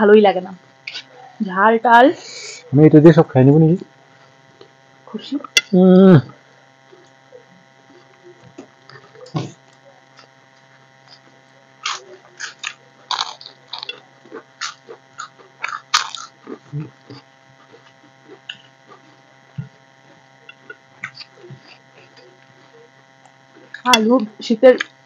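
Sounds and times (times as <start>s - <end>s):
faint electrical hum: 0.0s - 25.0s
crunching bites and chewing: 8.5s - 23.9s
lip and finger eating sounds: 11.0s - 24.0s.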